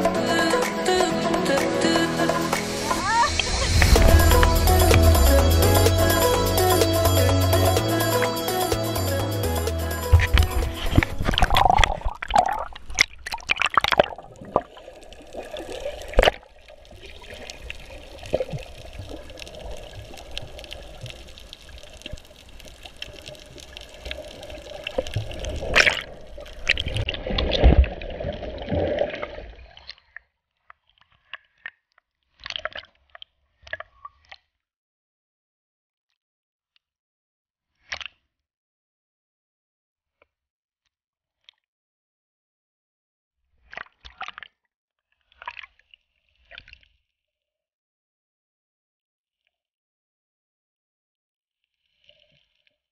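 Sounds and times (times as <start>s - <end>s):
muffled water sloshing and splashing: 10.1s - 29.9s.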